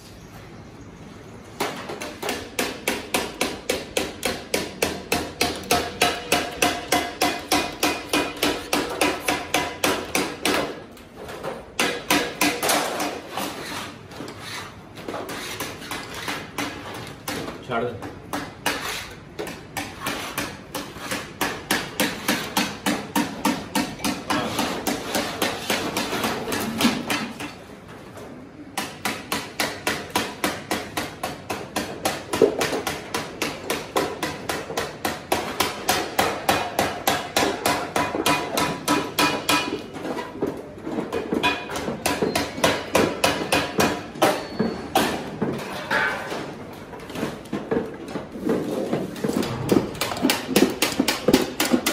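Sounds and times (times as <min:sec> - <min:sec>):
rapid hammering on metal: 0:01.6 - 0:10.8, 0:11.8 - 0:13.2, 0:18.3 - 0:27.4, 0:28.8 - 0:39.8, 0:41.4 - 0:44.4, 0:49.6 - 0:51.9.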